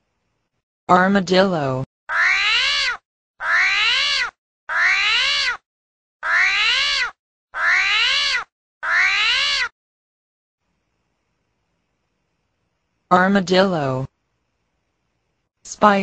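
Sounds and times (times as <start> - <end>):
whiny animal cries: 2.1 - 5.6, 6.2 - 9.8.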